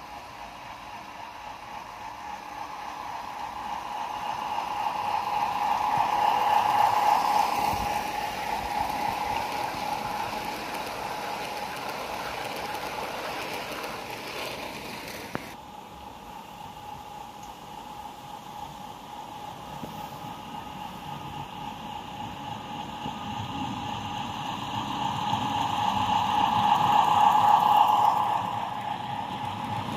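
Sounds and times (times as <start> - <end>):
model train rattling over rails: 0.0 - 15.6, 22.3 - 29.9
steady whine: 0.0 - 29.9.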